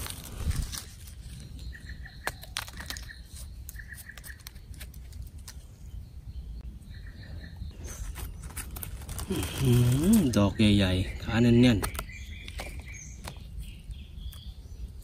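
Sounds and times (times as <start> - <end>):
clicks and rustles: 2.1 - 5.7.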